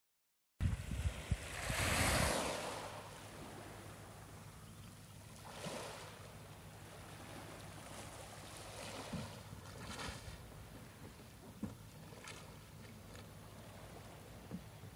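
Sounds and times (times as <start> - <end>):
wind rumble on microphone: 0.6 - 4.3
waves washing on pebble shore: 1.1 - 3.7, 5.4 - 6.2.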